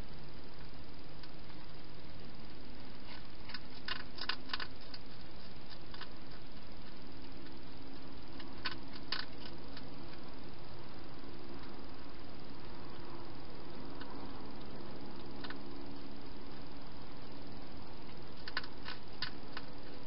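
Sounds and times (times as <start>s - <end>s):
microphone hiss: 0.0s - 20.0s
hedgehog crunching dry food: 2.9s - 10.3s, 14.0s - 16.7s, 18.0s - 20.0s.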